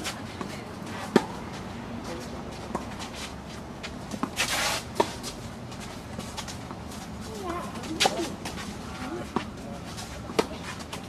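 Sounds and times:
tennis balls struck by rackets: 0:03.8 - 0:11.0.

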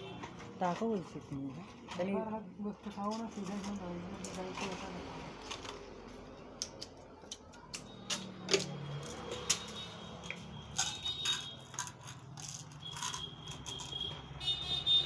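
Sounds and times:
small objects clicking and rattling: 0:05.4 - 0:14.5.

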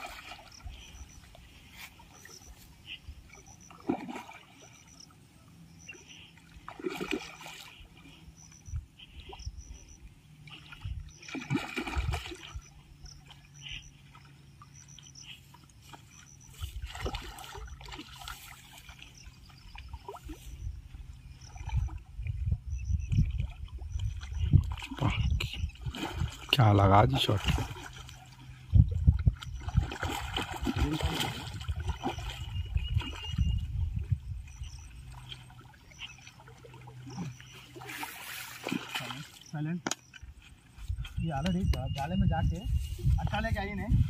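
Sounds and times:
fish splashing at water surface: 0:06.6 - 0:07.8, 0:10.5 - 0:12.6, 0:16.7 - 0:19.2, 0:29.4 - 0:33.4, 0:35.1 - 0:40.3.

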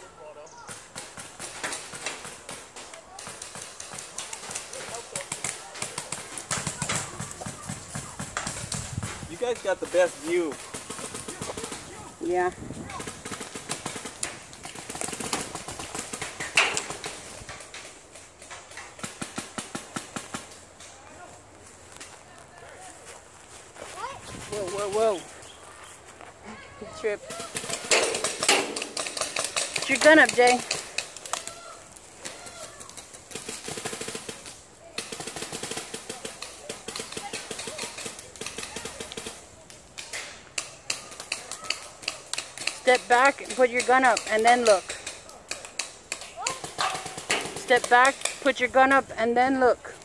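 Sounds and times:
paintball markers firing: 0:00.7 - 0:11.9, 0:27.3 - 0:31.5, 0:32.8 - 0:49.0.

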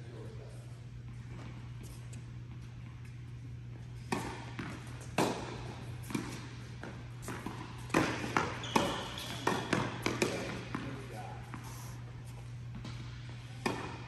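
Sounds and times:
tennis balls struck by rackets: 0:04.0 - 0:11.0, 0:12.7 - 0:14.0
tennis balls bouncing on hard court: 0:04.0 - 0:11.6, 0:12.4 - 0:14.0.

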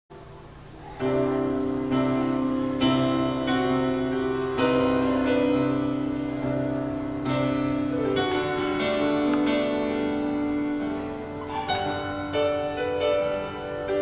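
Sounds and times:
slow piano chords: 0:00.1 - 0:14.0.

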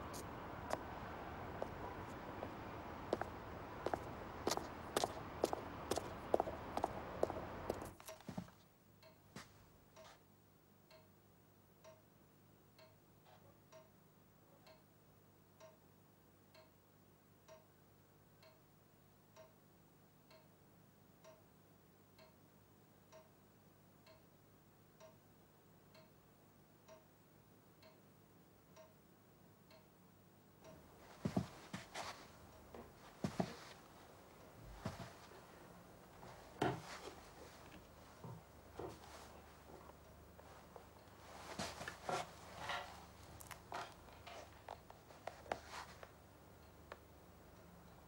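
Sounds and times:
footsteps: 0:00.0 - 0:08.6, 0:31.0 - 0:46.1
clock ticking faintly: 0:09.0 - 0:10.2, 0:10.8 - 0:30.0, 0:30.6 - 0:48.0.

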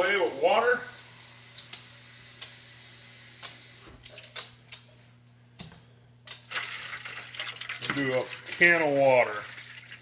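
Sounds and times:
tap water into metal can: 0:06.5 - 0:10.0.

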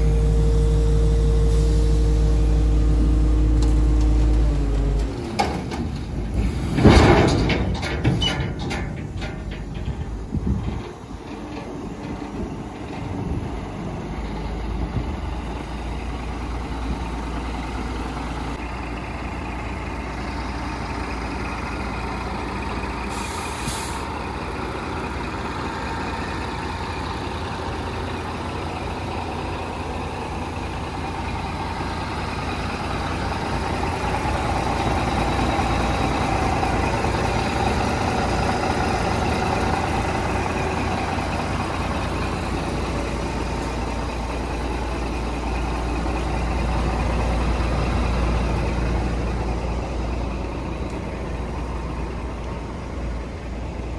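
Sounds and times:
diesel truck engine running: 0:00.0 - 0:53.9
air hiss: 0:23.1 - 0:24.1.

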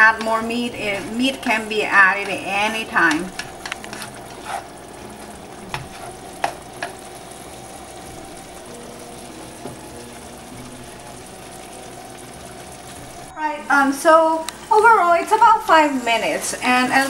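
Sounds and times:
food sizzling in a frying pan: 0:00.0 - 0:17.0
spatula clicking against pan: 0:03.1 - 0:04.4.

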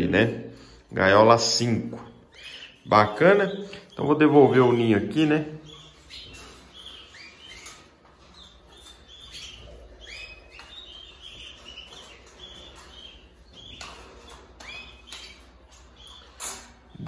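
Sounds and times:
canaries chirping: 0:00.0 - 0:17.0.

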